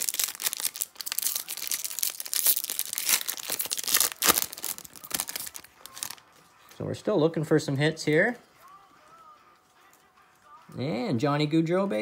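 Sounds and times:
foil crackles: 0:00.0 - 0:06.2
foil wrapper crinkling and tearing: 0:00.0 - 0:06.2.

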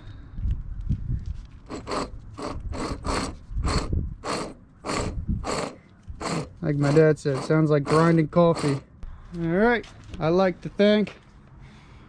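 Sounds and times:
wheel bearing grinding: 0:01.6 - 0:08.9.

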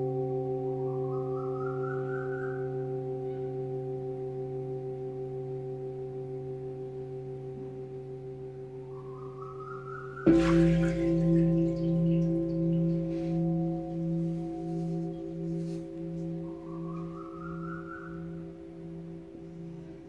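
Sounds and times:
singing bowls ringing: 0:00.0 - 0:20.0
bowl struck with mallet: 0:10.2 - 0:20.0.

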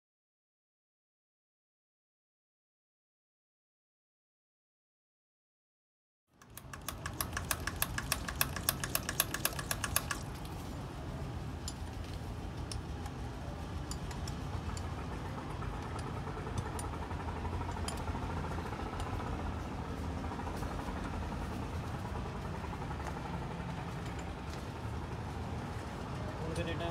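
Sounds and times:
fast even ticking clatter: 0:06.4 - 0:10.5
diesel tractor engine idling: 0:06.4 - 0:11.8.

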